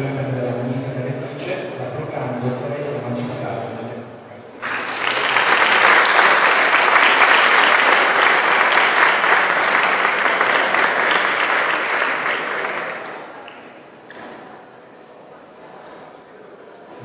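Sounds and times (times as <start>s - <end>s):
audience applauding: 4.6s - 13.8s.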